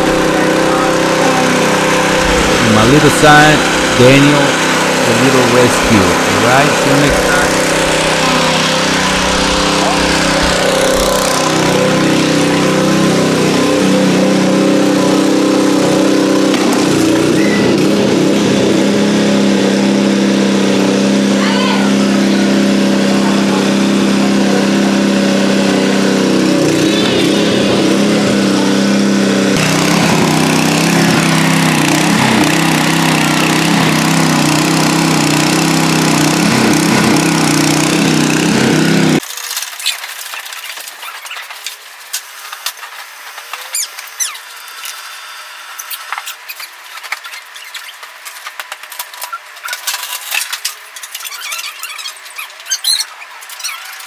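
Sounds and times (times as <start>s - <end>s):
small engine running water pump: 0.0s - 54.0s
squeaks and clicks: 39.2s - 45.0s, 45.8s - 54.0s.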